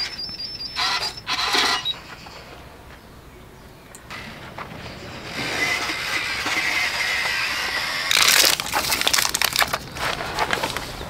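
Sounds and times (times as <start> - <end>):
plastic pouch tearing open: 8.1 - 10.8
plastic pouch crinkling: 8.1 - 10.9.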